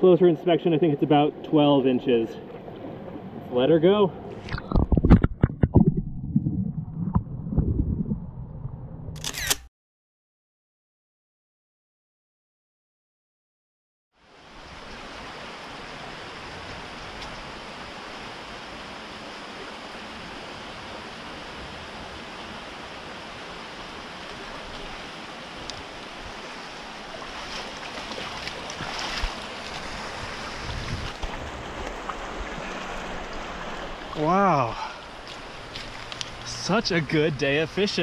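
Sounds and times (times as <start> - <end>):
creek rushing over rocks: 14.3 - 38.0
splashing and knocks in water: 27.1 - 30.0.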